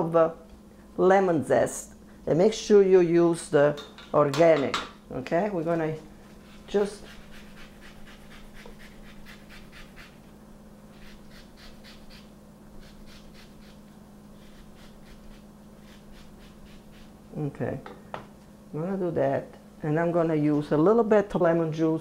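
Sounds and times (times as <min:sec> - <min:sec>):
zester scraping lemon rind: 0:06.4 - 0:10.2, 0:10.9 - 0:17.2.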